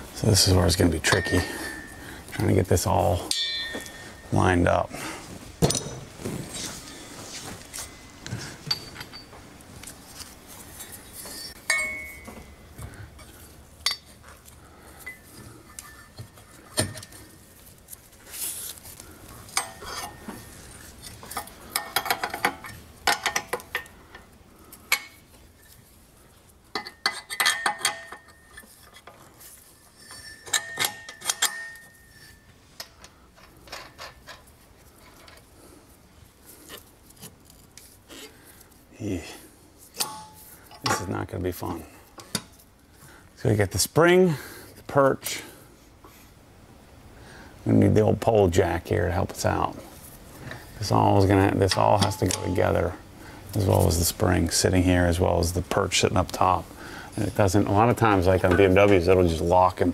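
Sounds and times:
metal parts and tools clinking: 0.8s - 4.8s, 5.6s - 25.8s, 26.7s - 35.5s, 39.9s - 42.7s, 50.5s - 54.6s.

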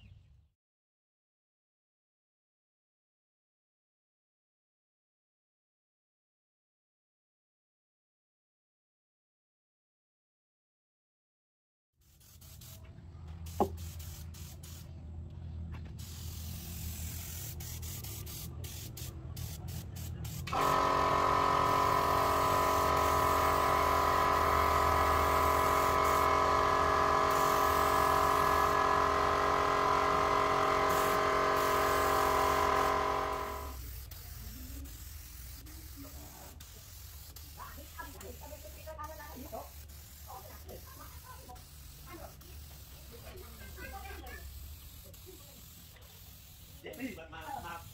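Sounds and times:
spray gun hissing: 12.0s - 12.8s, 13.4s - 14.9s, 16.0s - 47.9s
low hum: 20.6s - 33.8s.

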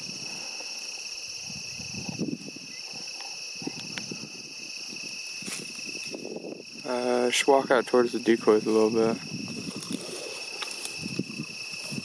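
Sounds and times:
crickets chirring: 0.0s - 12.0s
footsteps rustling through dry grass: 4.5s - 6.8s, 8.5s - 12.0s.

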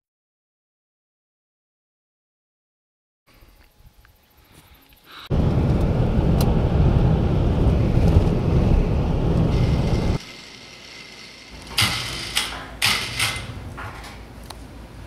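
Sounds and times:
truck wind and road noise: 5.3s - 10.2s.

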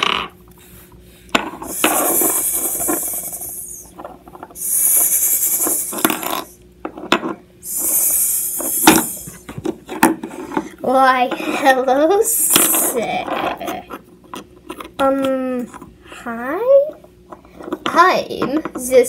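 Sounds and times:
person hissing like a snake: 1.7s - 3.9s, 4.6s - 6.6s, 7.6s - 9.4s.

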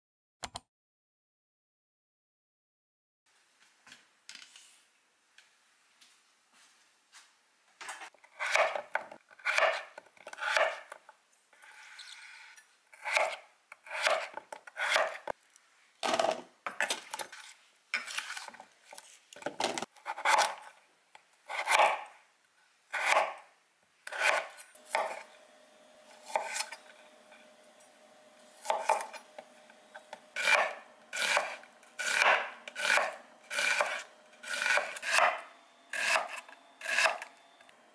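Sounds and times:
knife chopping on wooden board: 8.4s - 10.9s, 13.0s - 15.3s, 19.8s - 20.6s, 21.5s - 22.1s, 22.9s - 23.4s, 24.1s - 25.3s, 28.6s - 29.3s, 30.0s - 37.3s.

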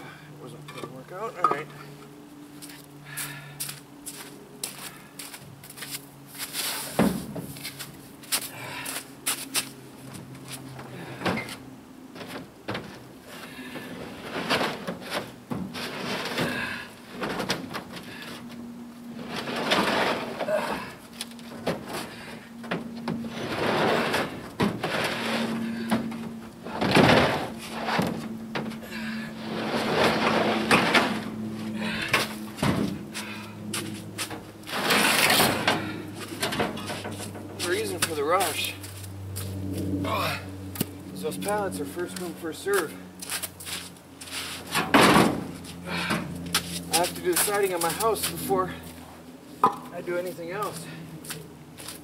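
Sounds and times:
cement blocks scraping on truck bed: 11.2s - 18.4s, 19.1s - 38.8s.

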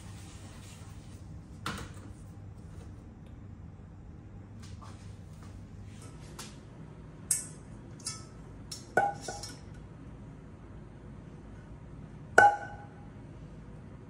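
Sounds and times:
metal saucepan clinking on bowl: 7.4s - 9.6s.

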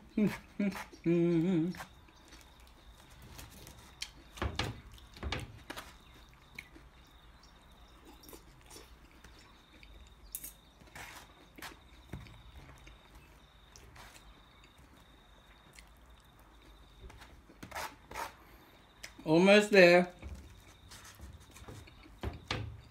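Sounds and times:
chewing: 0.2s - 4.3s, 5.9s - 17.6s, 20.3s - 22.2s.

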